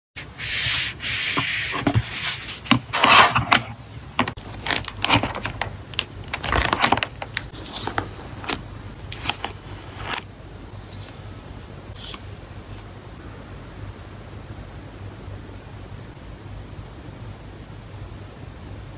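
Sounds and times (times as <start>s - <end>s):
hands rubbing binder cover: 0.2s - 5.7s.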